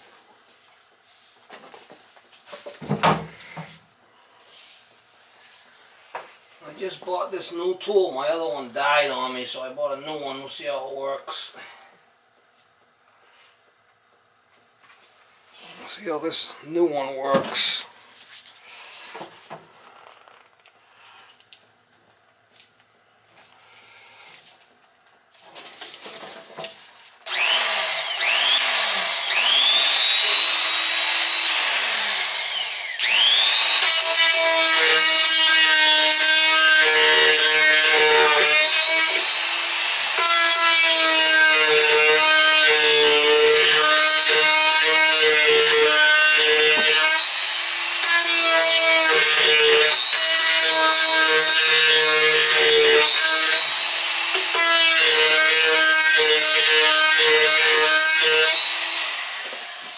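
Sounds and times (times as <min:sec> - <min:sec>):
die grinder whining: 0:27.3 - 0:59.9.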